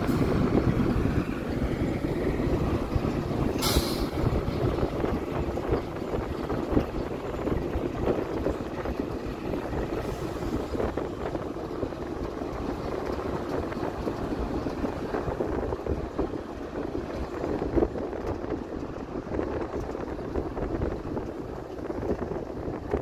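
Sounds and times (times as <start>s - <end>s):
vehicle road noise: 0.0s - 23.0s
wind buffeting microphone: 0.0s - 23.0s.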